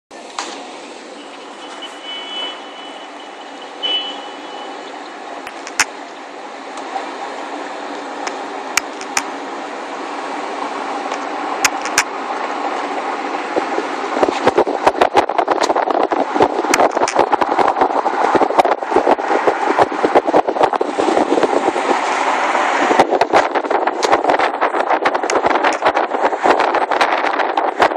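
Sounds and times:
car road and wind noise: 0:00.1 - 0:27.9
sharp clicks: 0:05.5 - 0:06.0, 0:08.2 - 0:09.3, 0:11.1 - 0:12.1.

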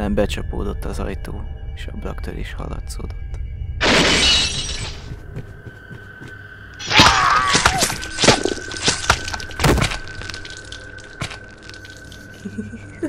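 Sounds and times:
crashes breaking and thuds: 0:03.8 - 0:05.1, 0:06.8 - 0:11.9.

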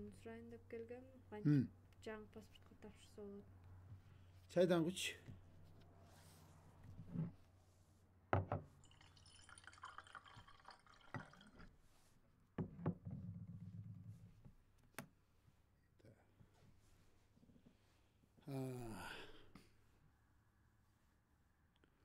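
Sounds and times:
tea pouring trickle: 0:08.8 - 0:11.8.

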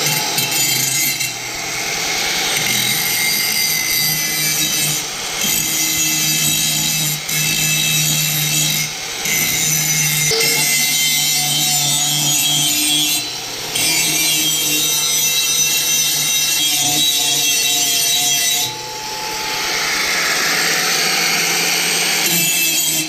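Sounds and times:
angle grinder grinding steel: 0:00.0 - 0:23.0.

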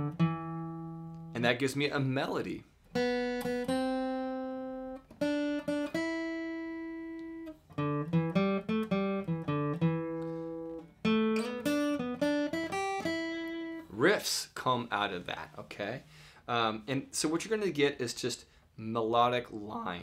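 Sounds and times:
acoustic guitar melody: 0:00.0 - 0:01.4, 0:02.8 - 0:14.1.

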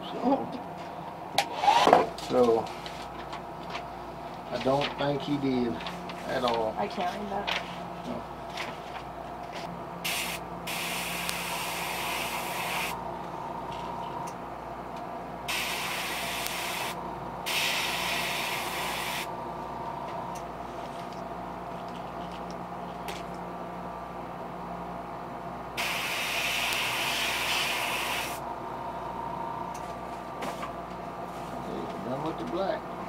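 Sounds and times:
steady hum: 0:00.0 - 0:33.0
airbrush hissing air: 0:10.0 - 0:13.0, 0:15.5 - 0:19.3, 0:25.8 - 0:28.4.

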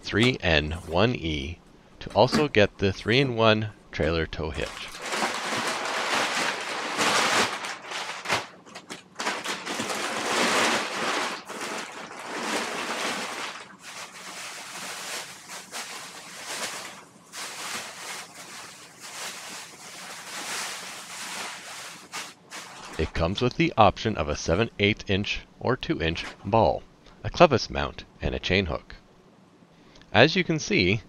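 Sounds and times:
packing paper rustling and crinkling: 0:04.6 - 0:23.1
plastic bag rustling: 0:04.6 - 0:23.2.

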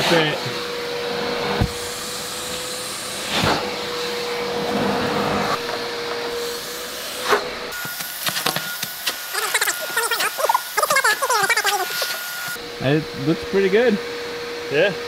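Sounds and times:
shop vacuum running: 0:00.0 - 0:15.0.

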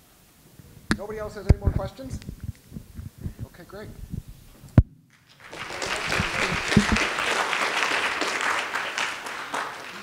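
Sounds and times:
audience clapping: 0:05.1 - 0:10.0.

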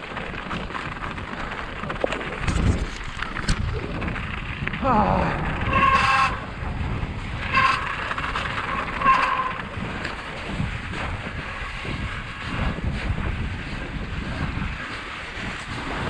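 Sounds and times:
bike tyre noise: 0:00.0 - 0:16.0
wind rushing over microphone: 0:00.0 - 0:16.0
high-pitched squeals: 0:05.3 - 0:06.5, 0:07.4 - 0:09.7.

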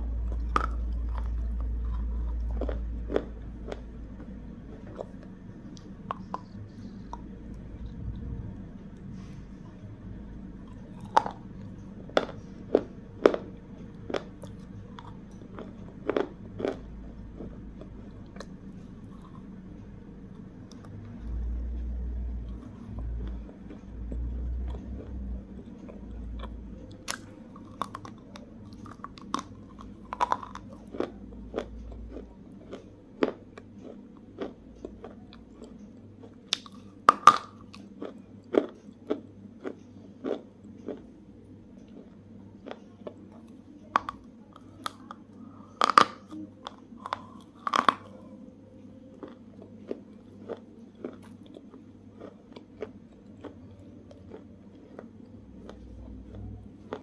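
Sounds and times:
low rumble: 0:00.0 - 0:32.3
crunching wafer bar: 0:45.8 - 0:48.1.

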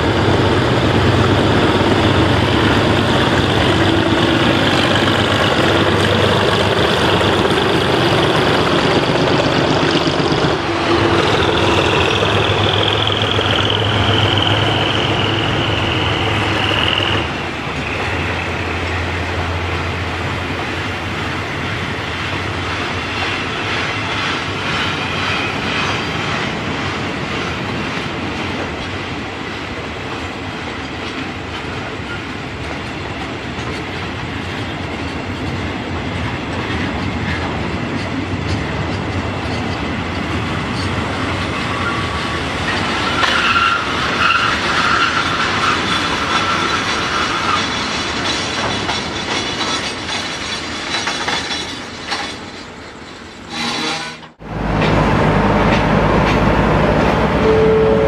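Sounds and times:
train wheels clattering over rail joints: 0:00.0 - 0:55.0
high wheel squeal: 0:01.3 - 0:19.5, 0:41.5 - 0:51.9, 0:53.4 - 0:54.3.

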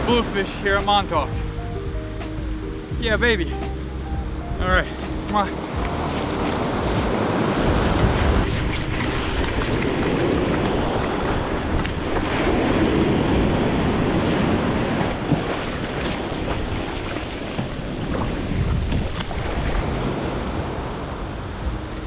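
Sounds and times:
ocean surf breaking: 0:00.0 - 0:22.0
wind buffeting microphone: 0:00.0 - 0:22.0.

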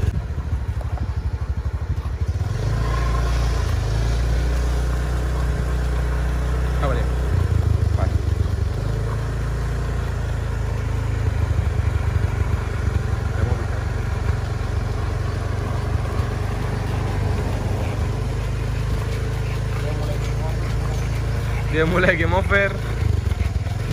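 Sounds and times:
vehicle engine rumbling: 0:00.0 - 0:23.9.

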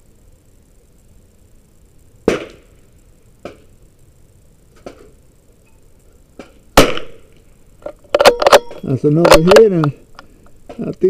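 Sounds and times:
rifle shots: 0:02.2 - 0:02.7, 0:06.8 - 0:07.3.

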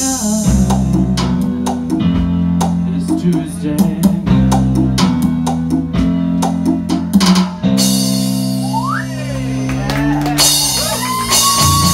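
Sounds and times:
live rock band playing: 0:00.0 - 0:11.9.

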